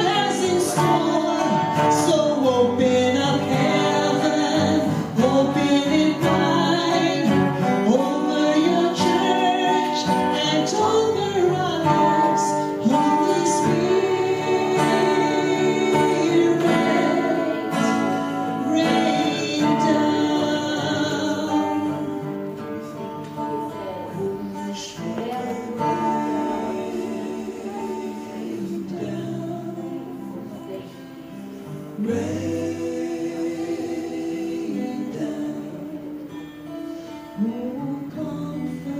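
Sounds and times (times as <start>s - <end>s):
woman singing into microphone: 0.0s - 22.2s, 23.3s - 31.4s
acoustic guitar: 0.0s - 38.9s.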